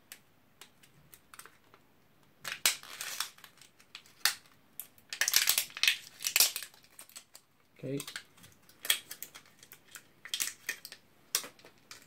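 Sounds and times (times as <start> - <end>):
crinkling rustle: 2.4 - 12.0.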